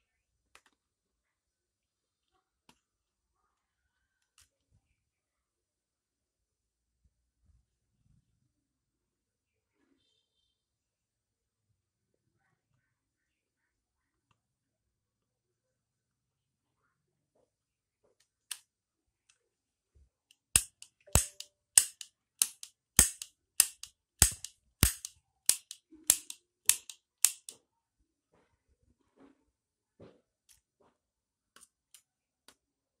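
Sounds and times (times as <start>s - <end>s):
cap gun sharp cracks: 20.6s - 27.6s.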